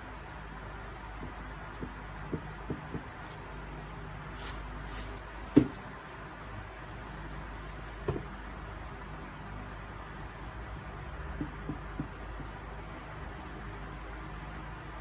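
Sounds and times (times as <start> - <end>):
marker writing on whiteboard: 0.0 - 5.8, 7.1 - 14.2
tissue wiping whiteboard: 4.3 - 8.1
knock against board: 5.5 - 5.8.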